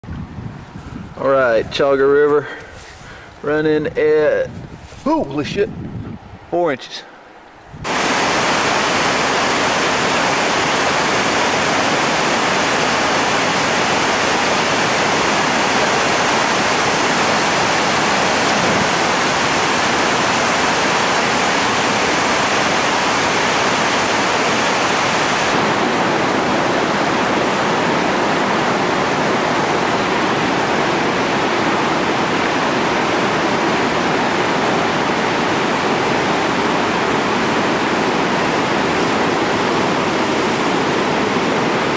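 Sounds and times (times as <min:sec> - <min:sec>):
whitewater rapids rushing: 0:07.9 - 0:41.9.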